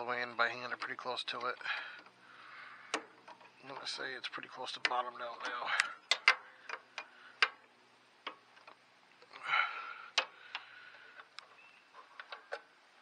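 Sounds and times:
wrench clicking on metal: 4.8s - 7.6s.

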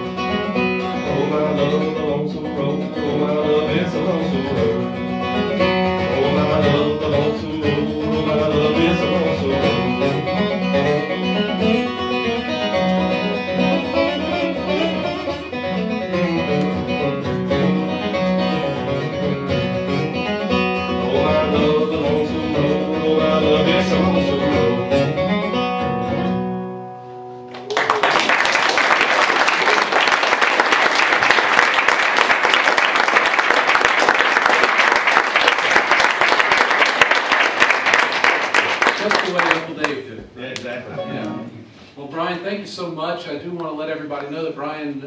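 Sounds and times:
bluegrass acoustic guitar: 0.0s - 27.7s, 40.7s - 44.3s
audience applause: 27.5s - 40.0s.

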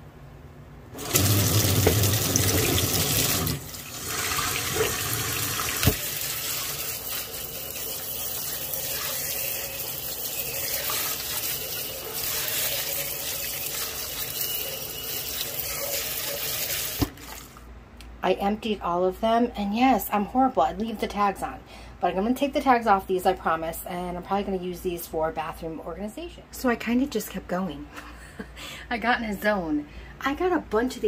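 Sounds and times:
tap water running into sink: 1.0s - 17.6s.

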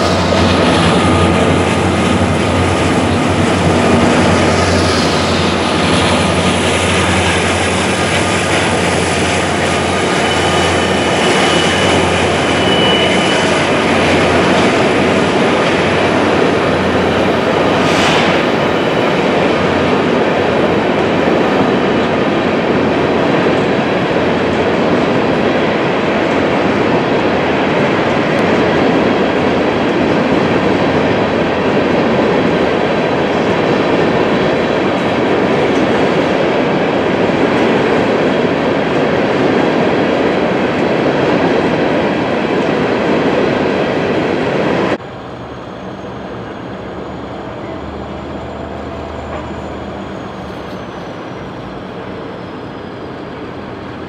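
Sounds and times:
diesel locomotive hum: 0.0s - 54.0s
train wheels on rails: 0.0s - 54.0s
faint wheel squeal: 10.0s - 14.0s, 45.4s - 53.1s.

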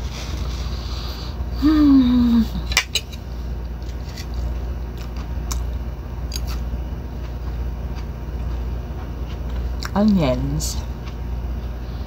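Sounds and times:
low background hum: 0.0s - 12.0s
person humming mmm: 1.5s - 2.7s
chewing crunchy food: 3.6s - 10.2s, 10.8s - 11.8s.

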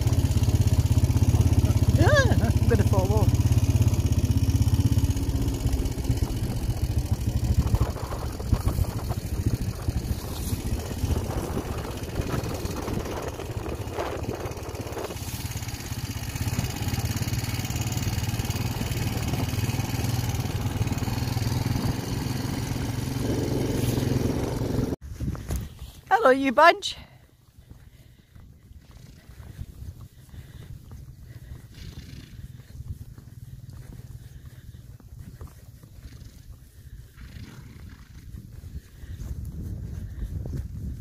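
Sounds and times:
quad bike engine running: 0.0s - 25.0s, 26.9s - 41.0s.

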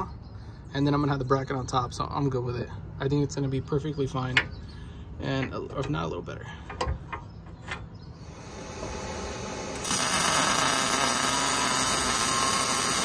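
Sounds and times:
welder hissing: 8.2s - 13.0s.

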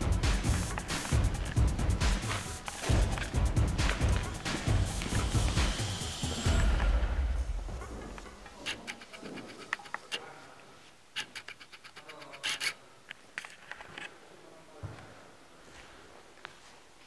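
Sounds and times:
footsteps crunching on gritty floor: 0.5s - 8.6s.

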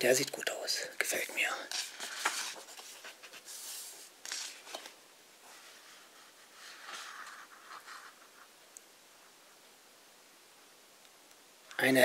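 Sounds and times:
book pages rustling: 1.6s - 8.5s.

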